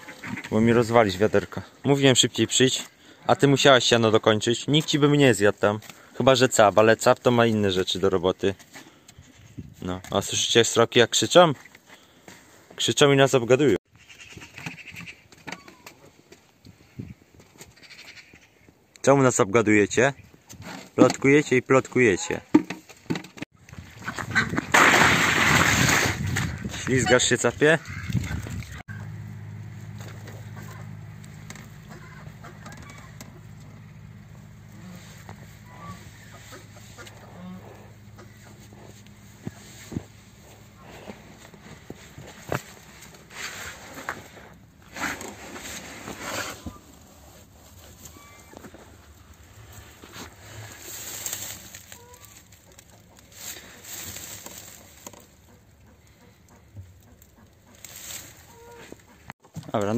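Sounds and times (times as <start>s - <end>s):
branches rustling and crackling: 22.7s - 59.9s
goats chewing twigs: 27.8s - 46.0s, 46.7s - 59.9s
steady low hum: 28.9s - 44.9s
faint animal calls: 31.8s - 34.0s, 34.8s - 39.7s, 47.9s - 48.7s, 51.8s - 54.0s
fowl clucking: 31.8s - 34.0s, 34.8s - 39.2s.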